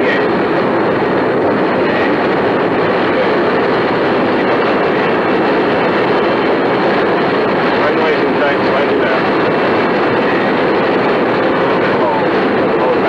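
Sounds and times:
cockpit airflow and engine noise: 0.0 - 13.0.

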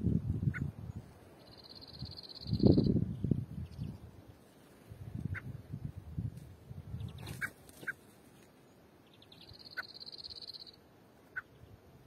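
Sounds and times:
small birds calling: 0.4 - 5.6, 6.9 - 11.9
high rapid bird trill: 1.4 - 3.0, 9.1 - 11.6.

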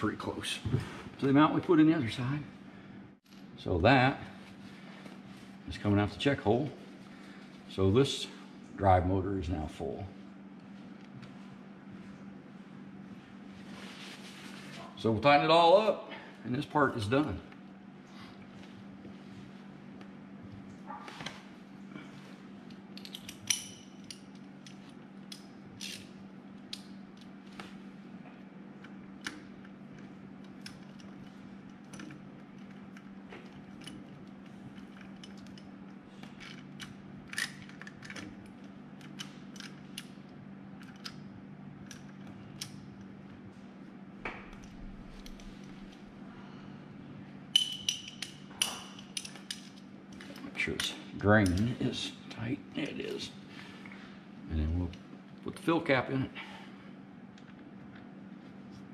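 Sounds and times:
steady low hum: 0.0 - 58.9.

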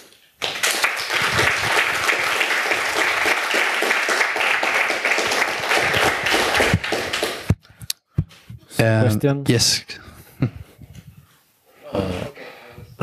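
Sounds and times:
audience applauding: 0.4 - 7.6.

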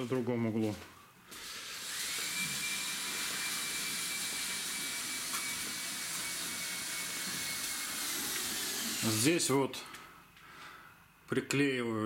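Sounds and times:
electric motor whining: 1.5 - 9.2.

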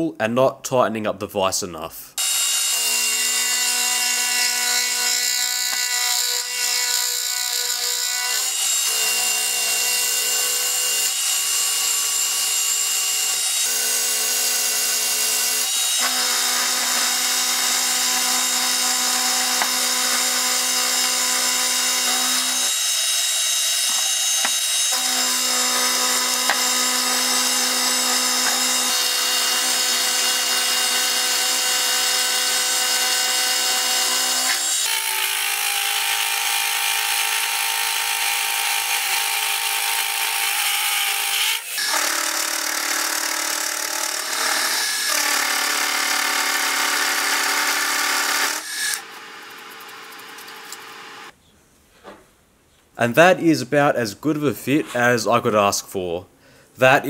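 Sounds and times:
milling machine motor whine: 49.0 - 51.3.

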